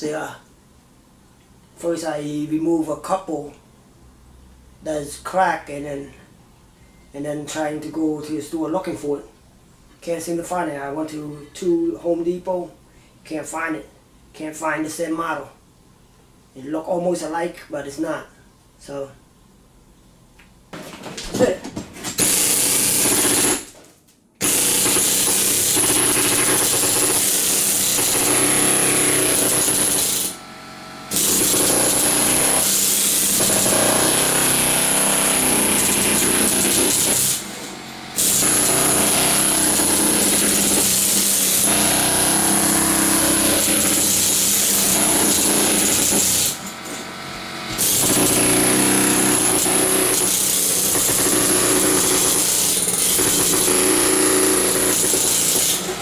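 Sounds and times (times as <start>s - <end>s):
pneumatic air hammer chiseling: 22.1s - 23.8s, 24.4s - 56.0s.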